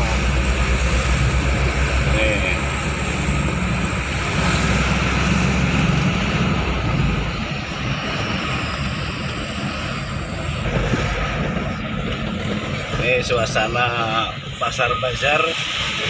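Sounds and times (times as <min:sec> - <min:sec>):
diesel truck engine droning: 0:00.0 - 0:16.0.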